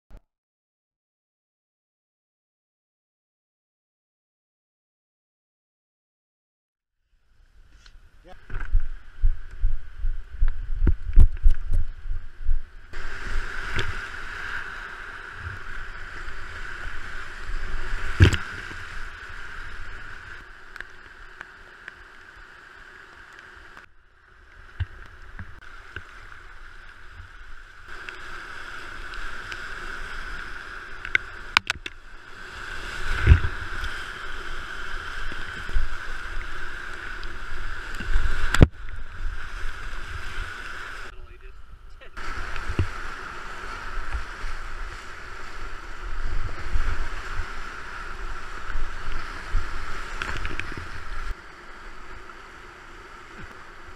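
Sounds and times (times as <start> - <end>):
river water rushing: 12.9 - 41.1, 42.2 - 53.9.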